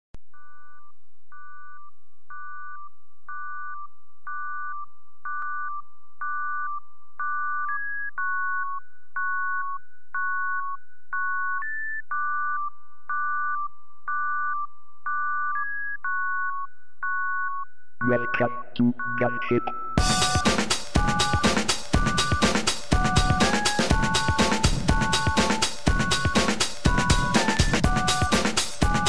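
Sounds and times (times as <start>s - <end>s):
electronic synthesizer melody: 19.6s - 29.0s.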